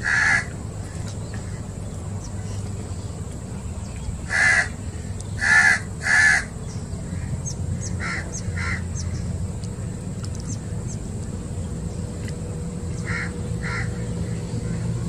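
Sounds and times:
harsh caw-like bird calls: 0.0 - 1.7, 4.2 - 9.3, 13.0 - 15.0
low background rumble: 0.0 - 15.0.

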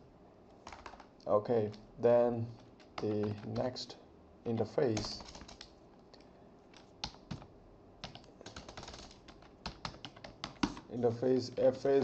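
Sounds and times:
computer keyboard typing: 0.6 - 1.1, 2.6 - 3.8, 4.6 - 5.7, 6.7 - 10.9.

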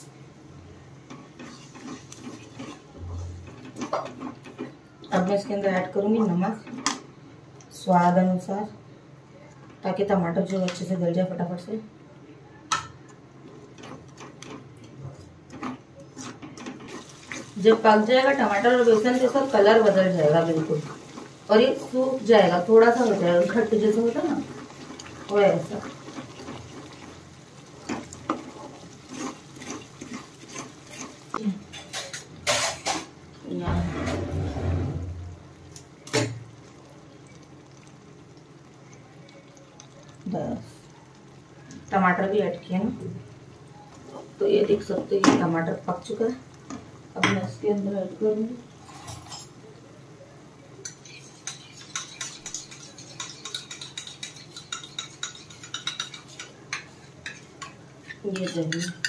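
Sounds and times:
spoon scraping a pan: 1.0 - 7.1, 13.6 - 36.4, 48.7 - 49.6, 50.8 - 59.0.

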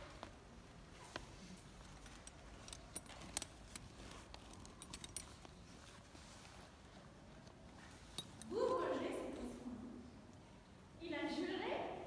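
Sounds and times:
small clicks and clinks: 1.1 - 6.0, 7.7 - 8.5.

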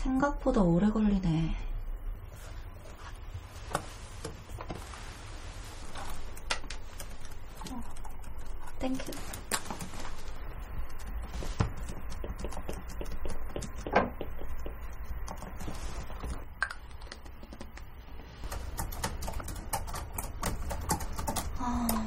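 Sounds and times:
laptop keyboard typing: 6.2 - 22.0.

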